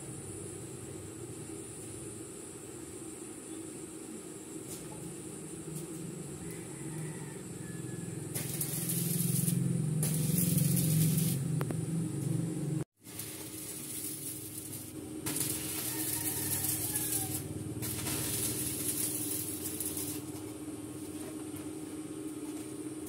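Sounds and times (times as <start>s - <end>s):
steady low hum: 0.0s - 23.0s
welding arc crackling and hissing: 8.0s - 21.9s.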